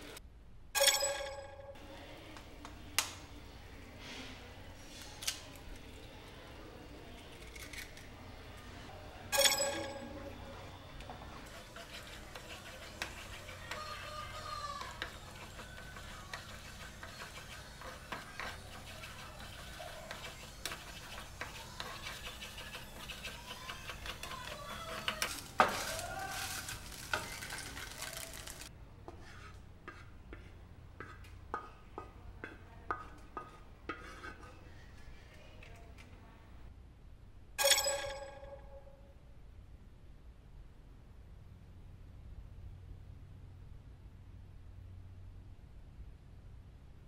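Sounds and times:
spatula clinking on steel plate: 9.3 - 10.2
wooden spatula scraping a pan: 11.1 - 35.5
eggs sizzling in a frying pan: 11.5 - 28.7.

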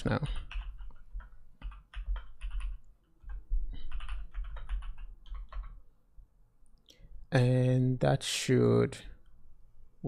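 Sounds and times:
typing on keyboard: 0.1 - 5.8.

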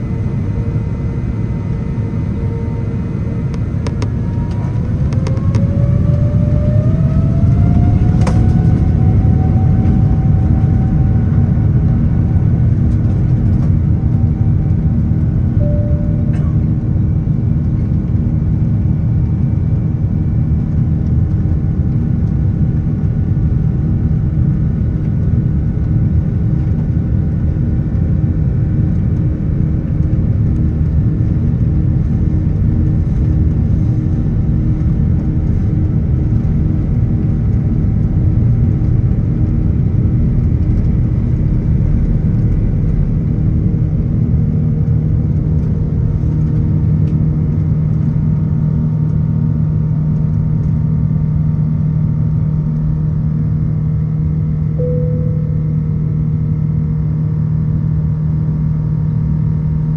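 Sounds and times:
engine whining tones: 0.0 - 17.5
jet engines rumbling in cabin: 0.0 - 59.9.

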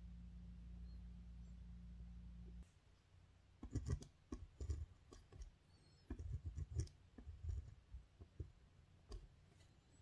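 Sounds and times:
pen scratching on paper: 3.6 - 9.3.

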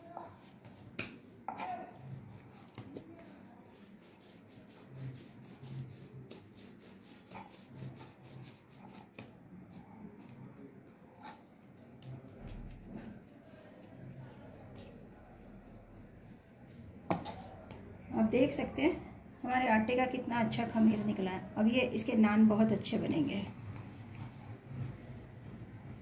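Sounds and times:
hands kneading dough: 0.0 - 18.0.

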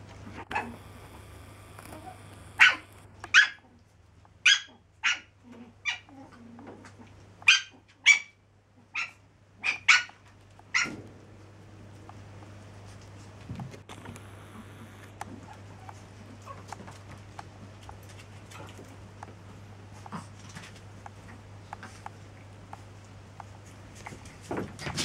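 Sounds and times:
small dogs yapping: 0.4 - 1.0, 1.6 - 3.8, 4.4 - 11.0, 15.3 - 16.8.

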